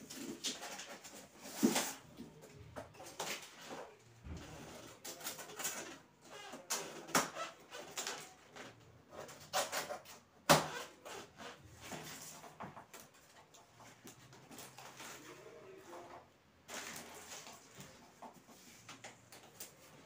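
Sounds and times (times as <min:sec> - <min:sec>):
knife cutting plastic straps: 0:04.7 - 0:12.0.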